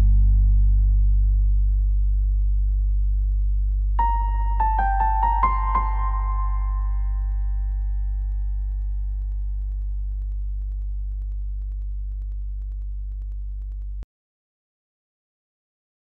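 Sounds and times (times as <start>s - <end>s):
deep sustained drone: 0.0s - 11.7s
piano-like tones: 4.0s - 9.8s.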